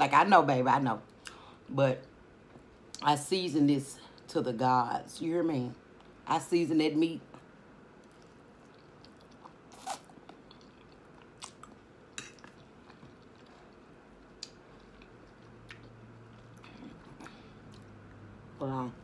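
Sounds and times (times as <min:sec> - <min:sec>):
faint low hum: 0:00.0 - 0:19.0
chewing and mouth sounds: 0:08.0 - 0:18.3.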